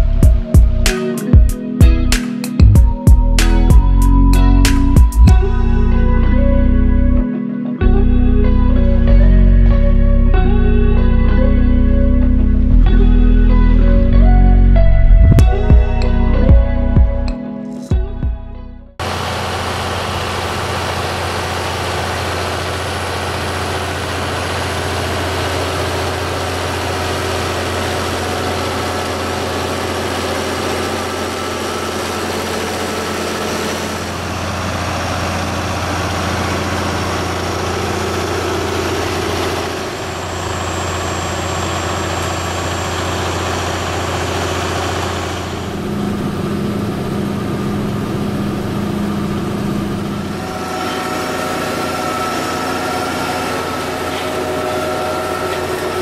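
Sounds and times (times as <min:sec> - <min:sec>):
harvester mechanism running: 0:19.0 - 0:56.0
tractor engine under load: 0:19.0 - 0:56.0.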